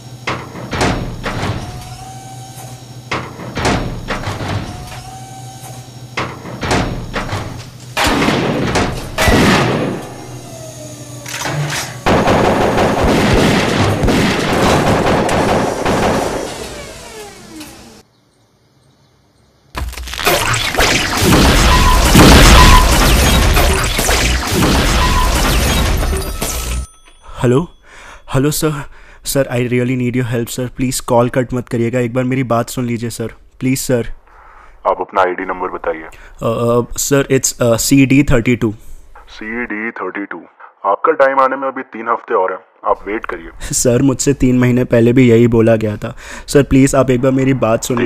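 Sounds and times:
low hum: 0:00.0 - 0:18.0
mechanical whine: 0:00.0 - 0:18.1, 0:19.8 - 0:27.8
metallic robot footfalls: 0:00.2 - 0:01.8, 0:03.1 - 0:05.0, 0:06.2 - 0:10.1, 0:19.8 - 0:26.8
rapid gunfire: 0:08.0 - 0:10.2, 0:12.0 - 0:16.5, 0:20.3 - 0:26.3.

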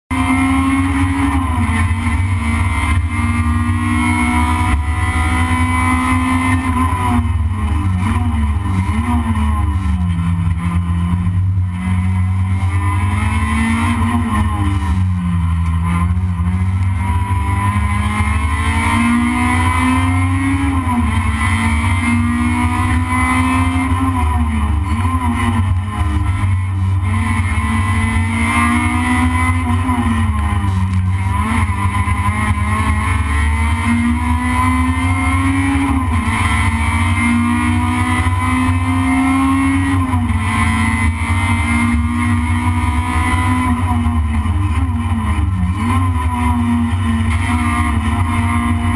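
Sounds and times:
race car engine from inside cabin: 0:00.1 - 0:48.9.

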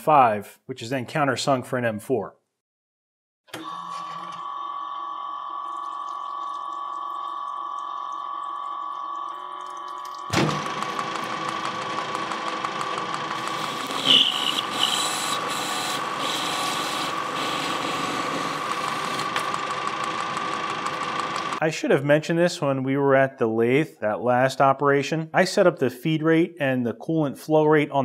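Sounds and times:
coolant pouring: 0:04.4 - 0:21.6
metal lathe whining: 0:10.4 - 0:21.6
hissing metal cutting: 0:12.9 - 0:21.6.

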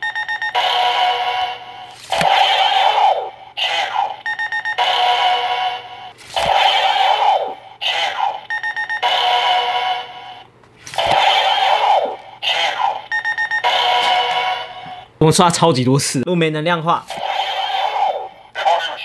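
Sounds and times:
toy gun falling zap: 0:02.0 - 0:02.8, 0:11.0 - 0:11.6.

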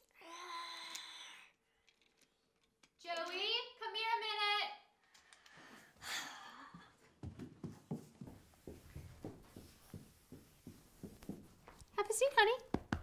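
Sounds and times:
child footsteps on stairs: 0:06.7 - 0:13.0.

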